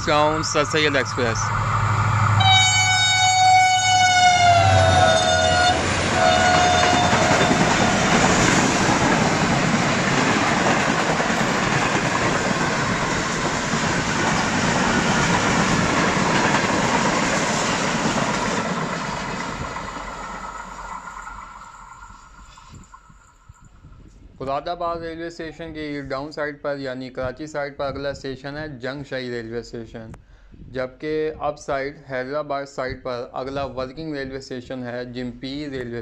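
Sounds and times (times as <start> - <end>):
locomotive horn blast: 2.4 - 8.4
train wheels on rails: 3.9 - 23.7.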